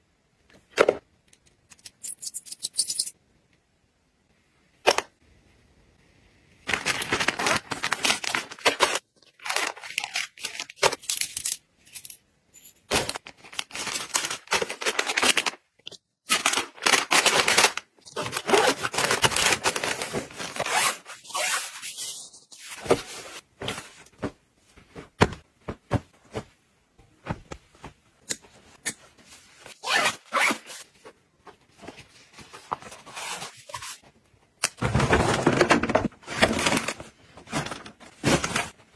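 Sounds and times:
plastic packaging crinkling: 6.7 - 11.2.

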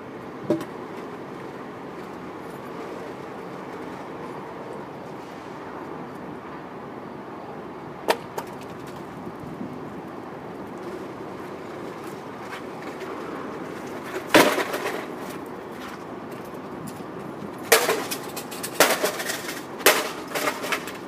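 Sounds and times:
loud wooden crash: 14.1 - 15.2.

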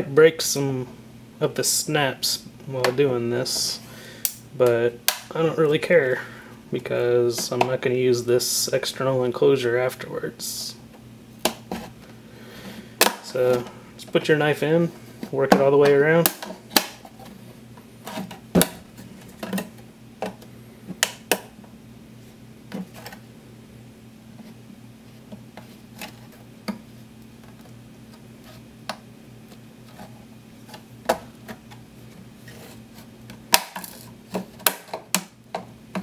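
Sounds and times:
faint low hum: 0.0 - 36.0
plastic clips popping and cracking: 16.2 - 17.0, 33.5 - 36.0.

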